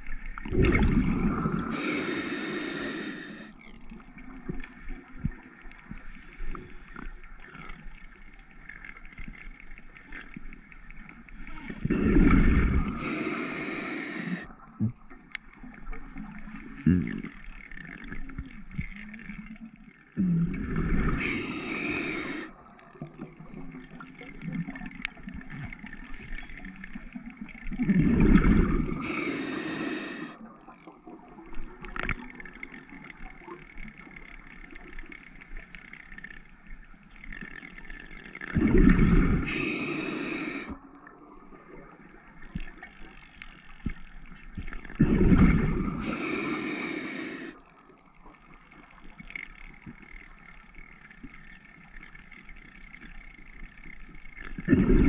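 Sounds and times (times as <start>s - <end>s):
faint underwater crackle: 0.0s - 55.0s
diver exhaling bubbles: 0.4s - 3.5s, 11.8s - 15.0s, 20.2s - 22.5s, 27.8s - 30.4s, 38.5s - 40.8s, 45.0s - 47.6s, 54.6s - 55.0s.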